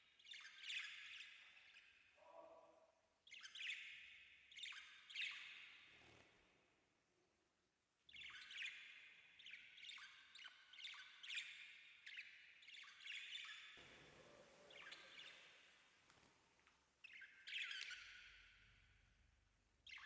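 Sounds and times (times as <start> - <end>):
parakeet chirping and chattering: 3.2 - 6.2, 8.1 - 15.9, 17.0 - 18.9.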